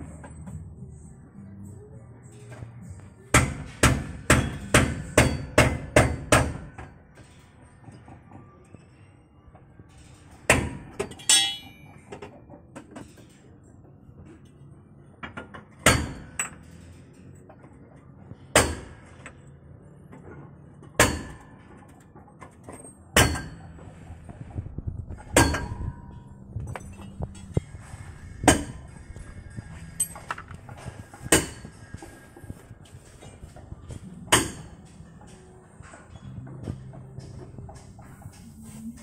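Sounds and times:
hammer striking metal: 3.3 - 6.9, 10.5 - 12.0, 15.8 - 16.8, 18.5 - 19.3, 21.0 - 21.8, 23.2 - 23.8, 25.3 - 29.0, 29.6 - 32.4, 34.0 - 38.6.

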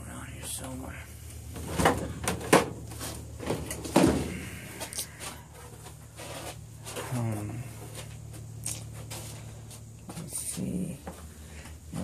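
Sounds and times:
objects knocking and clunking: 1.5 - 6.0.

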